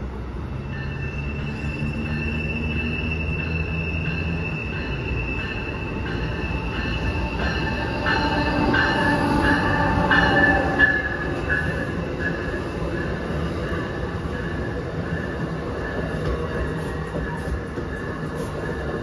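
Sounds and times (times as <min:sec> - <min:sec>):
train wheels rumbling on rails: 0:00.0 - 0:19.0
high ringing tone: 0:00.6 - 0:19.0
sharp clacks of train wheels: 0:00.7 - 0:19.0.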